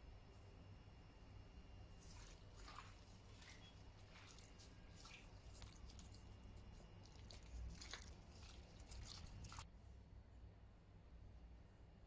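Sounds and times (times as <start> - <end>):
wet squelching of meat: 1.9 - 9.7.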